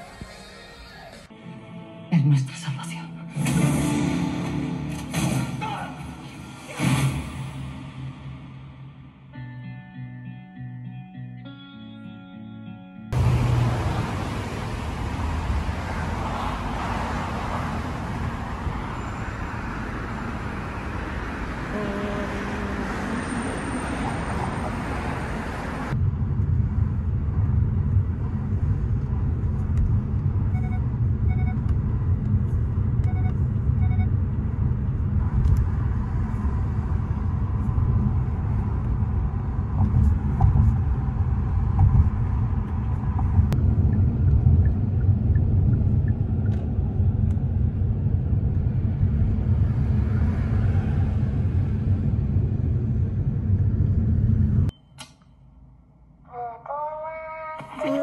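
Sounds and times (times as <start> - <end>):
street traffic: 2.0 - 10.4, 13.0 - 58.0
car cabin road rumble: 13.2 - 54.7.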